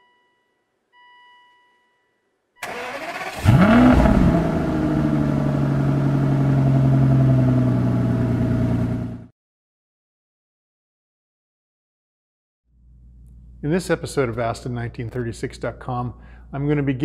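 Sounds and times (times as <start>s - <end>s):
starter motor cranking: 2.6s - 4.0s
car engine starting and idling: 2.6s - 9.3s.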